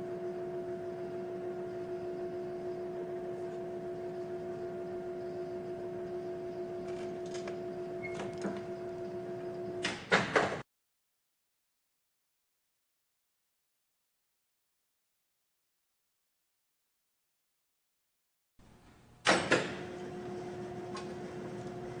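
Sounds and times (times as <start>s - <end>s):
chain hoist motor humming: 1.6s - 9.8s.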